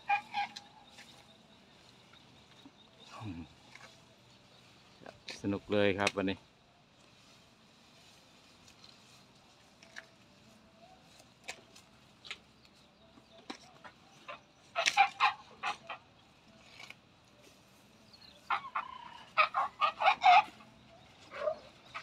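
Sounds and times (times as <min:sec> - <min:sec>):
chickens clucking: 0:00.0 - 0:05.6, 0:13.2 - 0:17.4, 0:18.2 - 0:22.0.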